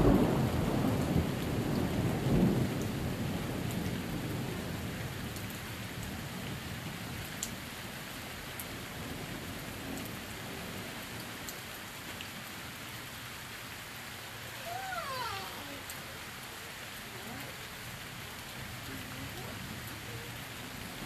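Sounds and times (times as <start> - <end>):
thunder rumble: 0.0 - 5.3
steady rain falling: 0.0 - 21.0.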